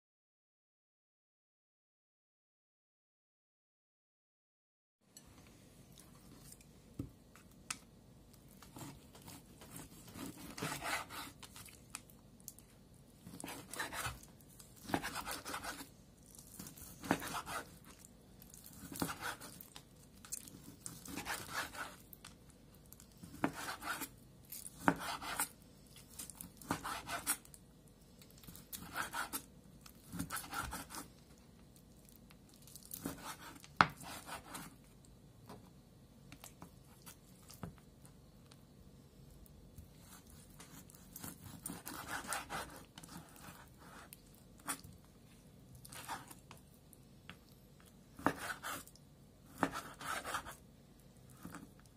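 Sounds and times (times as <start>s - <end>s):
knife slicing raw meat: 8.7s - 11.5s, 13.2s - 14.2s, 14.8s - 15.9s, 16.5s - 17.9s, 18.7s - 19.6s, 20.6s - 22.0s, 23.2s - 24.1s, 24.7s - 25.5s, 26.4s - 27.4s, 28.7s - 31.1s, 40.0s - 44.8s, 48.2s - 48.9s, 49.5s - 50.6s.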